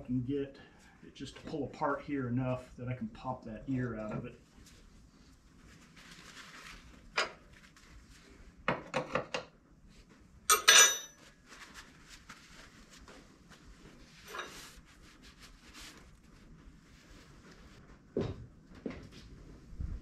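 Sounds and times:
metal tools knocking and clinking: 10.5s - 11.1s
metallic ring: 10.5s - 11.2s, 14.2s - 14.6s.

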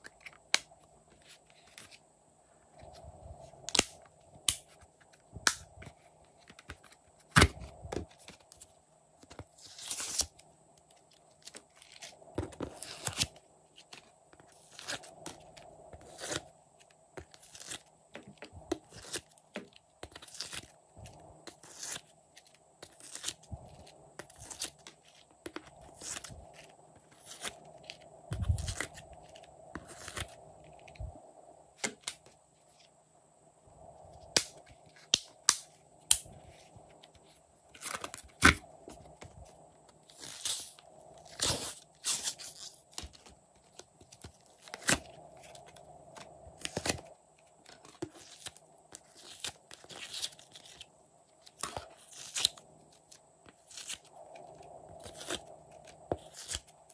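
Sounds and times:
clay tearing: 21.5s - 23.5s, 24.2s - 26.3s.

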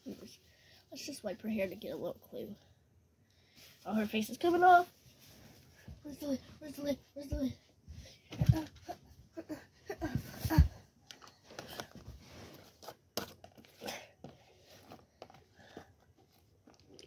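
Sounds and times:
plastic and paper items handled: 11.0s - 17.0s.

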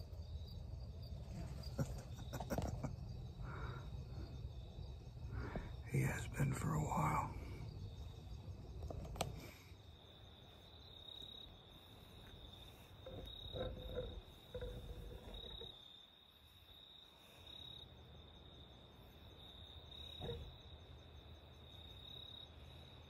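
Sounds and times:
crickets chirping: 0.0s - 23.0s.

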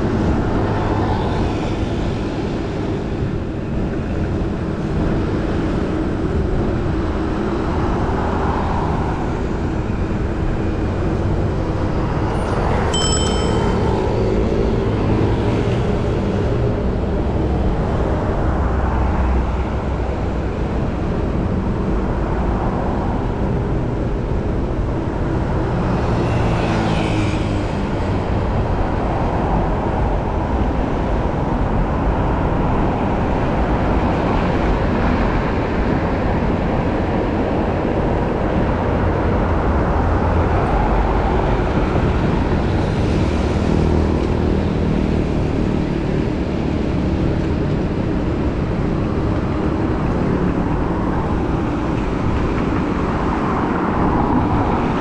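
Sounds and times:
heavy road traffic rumble: 0.0s - 55.0s
short high beep: 12.4s - 14.2s.

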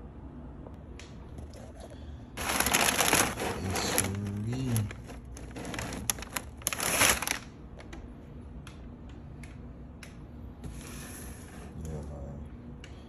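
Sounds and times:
plastic bags crinkling: 2.4s - 8.0s.

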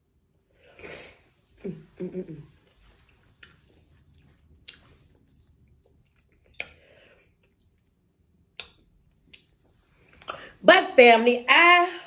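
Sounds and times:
soft rustle: 2.4s - 6.0s.

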